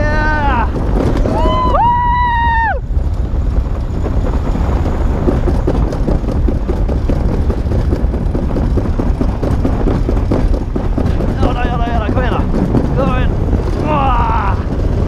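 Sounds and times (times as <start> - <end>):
sled rumbling on metal track: 0.0 - 15.0
small rattles: 0.0 - 15.0
wind buffeting microphone: 0.0 - 15.0.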